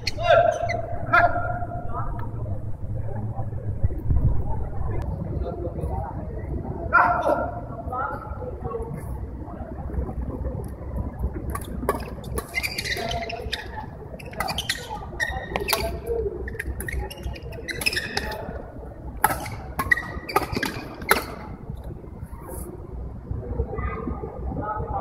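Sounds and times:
shoes squeaking on court floor: 0.0 - 0.9, 11.6 - 18.6, 19.2 - 21.5
racket striking shuttlecock: 19.2 - 21.5.

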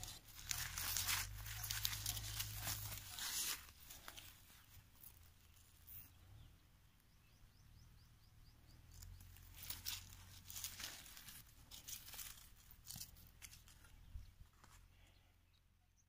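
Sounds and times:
feathers rustling on dry leaves: 0.0 - 6.0, 8.9 - 13.9.

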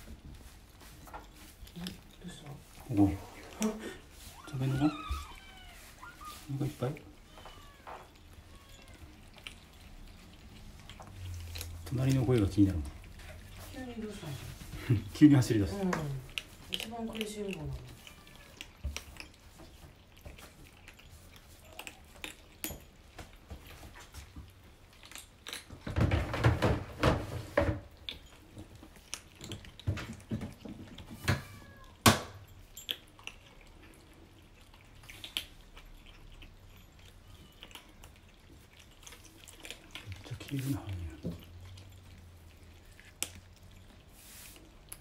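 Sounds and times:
kittens crunching dry kibble: 0.0 - 45.0.

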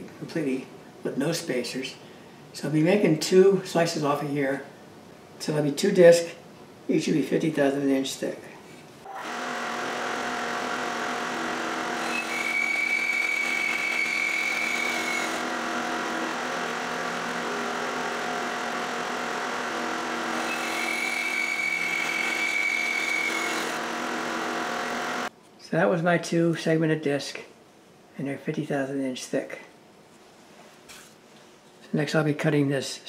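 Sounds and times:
bandsaw cutting wood whine: 9.1 - 25.3
bandsaw running: 9.1 - 25.3.

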